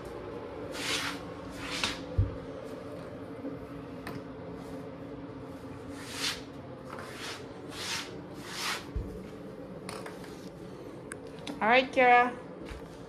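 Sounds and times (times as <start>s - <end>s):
steady low hum: 0.0s - 13.0s
soft scuffing on floor: 0.7s - 2.8s.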